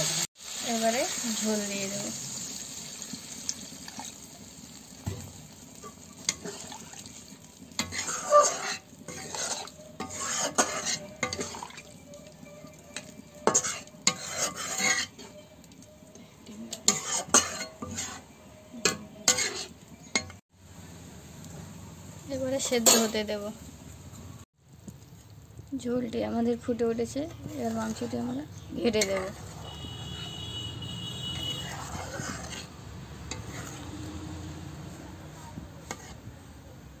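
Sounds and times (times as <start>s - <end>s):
meat sizzling: 0.0s - 36.3s
metal spatula scraping iron pan: 5.1s - 7.1s, 7.7s - 15.6s, 16.7s - 20.4s, 27.1s - 34.2s, 35.4s - 36.3s.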